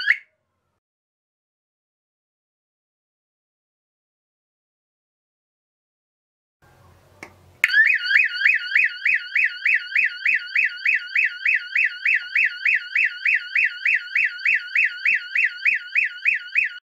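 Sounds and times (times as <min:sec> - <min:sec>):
electronic siren warbling: 0:07.6 - 0:16.8.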